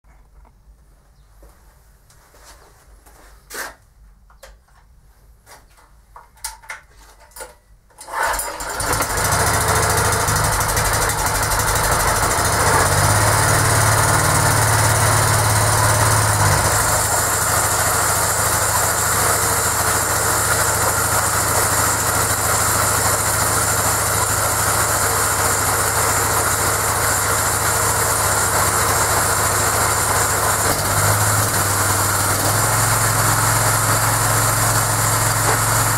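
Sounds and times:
petrol engine running: 8.0s - 35.9s.

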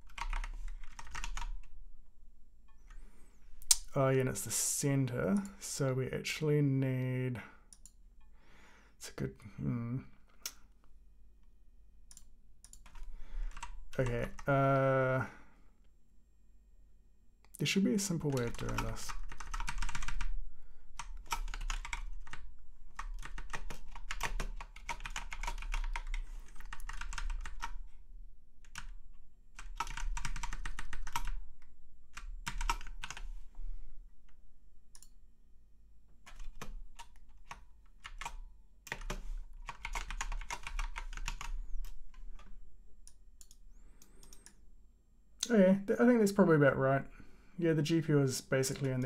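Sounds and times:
typing on computer keyboard: 0.0s - 1.7s, 12.1s - 14.5s, 18.3s - 20.3s, 21.0s - 27.8s, 29.6s - 31.4s, 32.2s - 33.2s, 36.3s - 42.5s.

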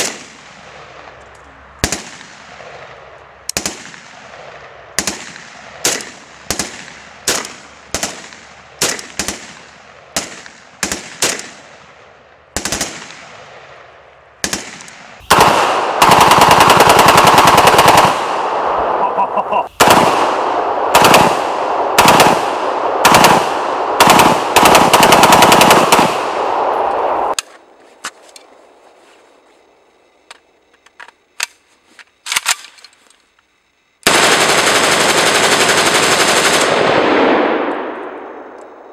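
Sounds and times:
rifle single shots: 0.0s - 1.2s, 1.8s - 19.0s, 19.8s - 27.5s, 34.0s - 38.6s
full-auto gunfire bursts: 5.0s - 11.6s, 12.6s - 13.5s, 14.4s - 18.8s, 19.8s - 26.7s, 34.0s - 37.7s.

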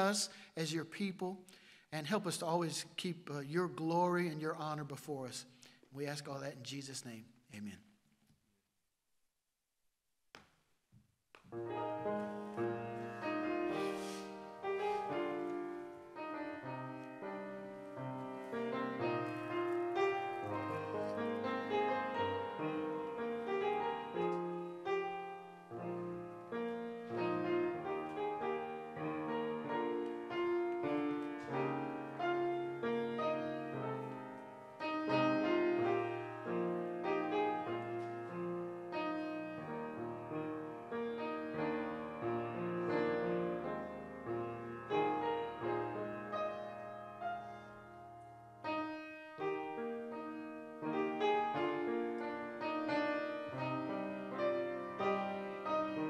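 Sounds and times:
piano music: 11.5s - 56.0s.

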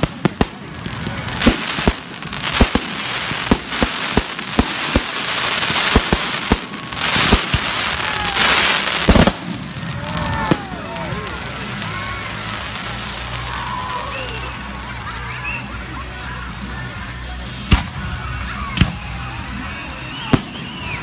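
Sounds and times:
fireworks bangs: 0.0s - 13.7s
hiss of burning fireworks: 0.0s - 16.1s, 17.0s - 21.0s.

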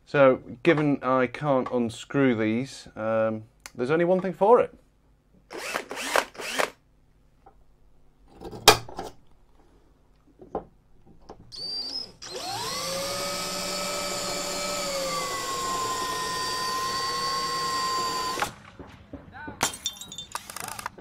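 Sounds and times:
cordless drill whining: 5.5s - 6.8s, 11.5s - 18.6s.

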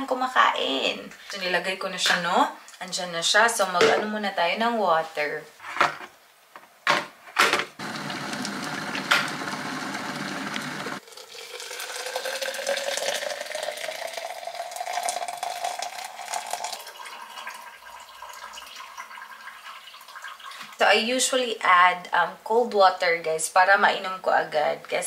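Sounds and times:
water dispenser running: 7.8s - 18.9s
water pouring into tumbler: 7.8s - 20.8s.

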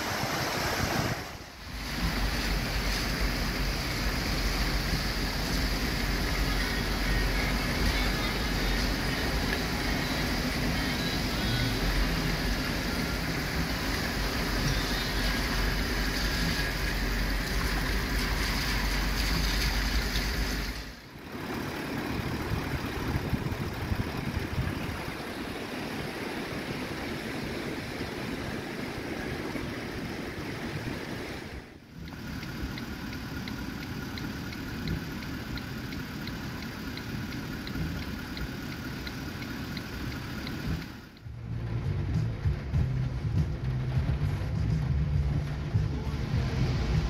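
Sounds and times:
river rushing: 0.0s - 10.5s, 24.8s - 31.7s
vehicle engine rumbling: 0.0s - 47.0s.

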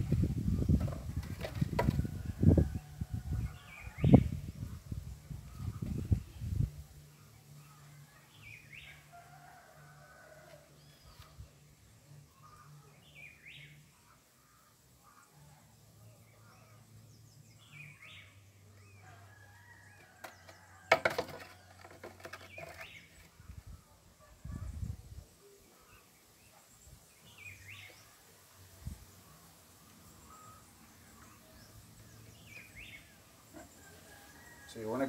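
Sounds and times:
birds calling faintly: 0.0s - 35.0s
plastic pipe knocks: 0.8s - 2.0s, 20.9s - 22.8s.

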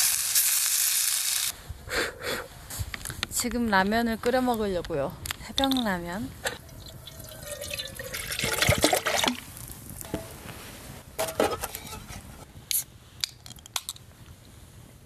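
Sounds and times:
water pouring into pot: 6.8s - 9.6s.

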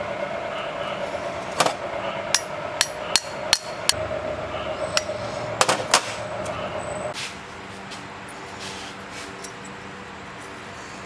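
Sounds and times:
steady hum: 0.0s - 11.0s
sharp metallic knocks: 2.3s - 4.2s, 4.9s - 6.5s.

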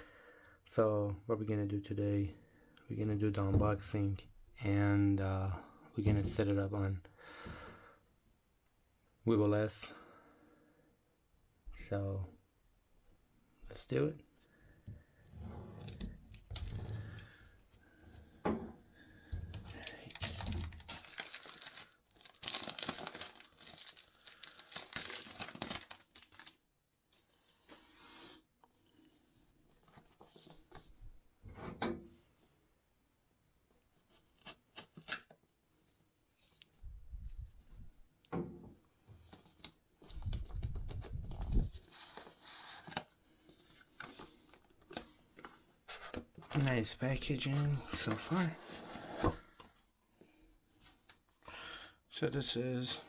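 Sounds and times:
packaging wrap crinkling and tearing: 19.8s - 26.6s.

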